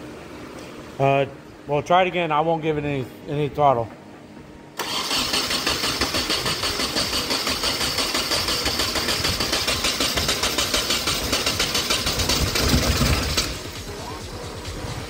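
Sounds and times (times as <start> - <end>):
engine cranking by starter: 4.8 - 15.0.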